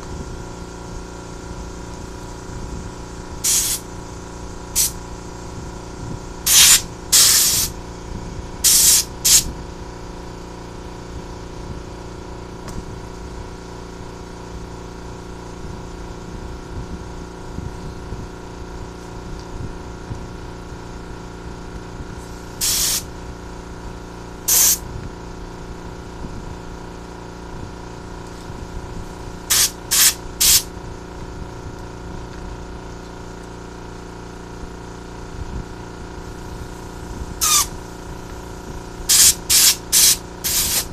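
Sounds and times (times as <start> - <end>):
air compressor humming: 0.0 - 40.9
compressed air blasts: 3.4 - 4.0, 4.7 - 5.0, 6.4 - 7.8, 8.6 - 9.5, 22.2 - 23.1, 24.5 - 24.9, 29.4 - 30.7, 36.3 - 40.9.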